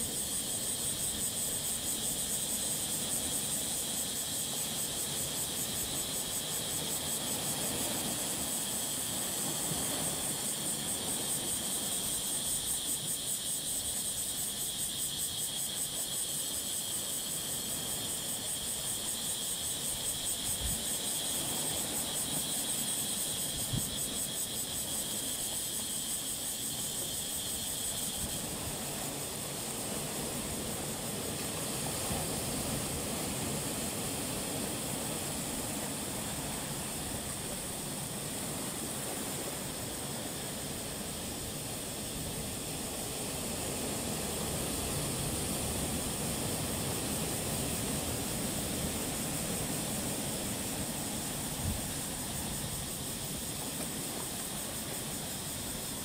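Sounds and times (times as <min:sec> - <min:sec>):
insects trilling: 0:00.0 - 0:56.0
sea waves washing over boulders: 0:26.4 - 0:56.0.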